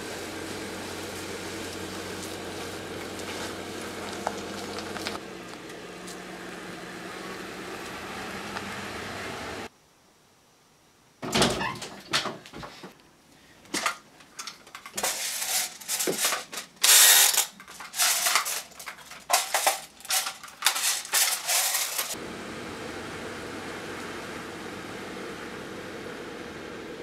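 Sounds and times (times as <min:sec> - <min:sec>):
plastic toys clicking and rattling: 0:13.7 - 0:22.2.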